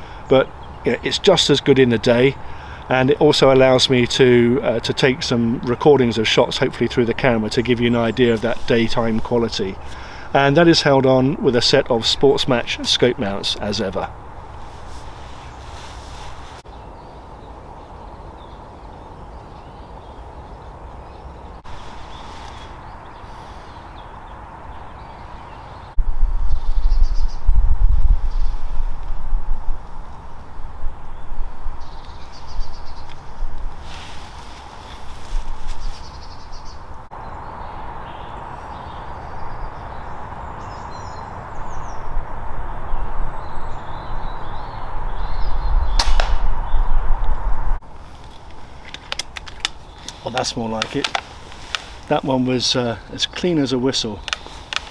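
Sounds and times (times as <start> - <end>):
steady background hiss: 0.0 - 25.9, 47.7 - 54.9
birds calling: 0.0 - 26.0, 30.1 - 54.9
air rifle firing: 46.0 - 46.5.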